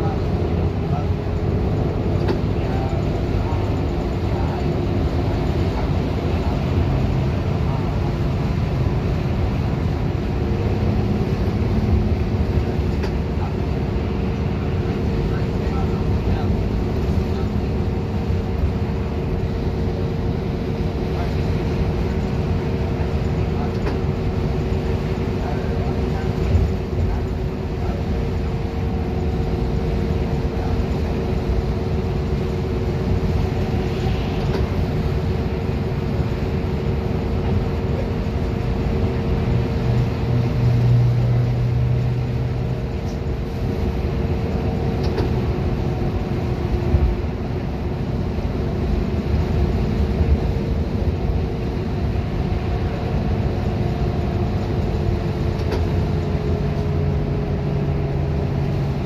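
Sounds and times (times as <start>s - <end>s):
bus engine and road noise: 0.0s - 59.0s
constant whine: 0.0s - 59.0s.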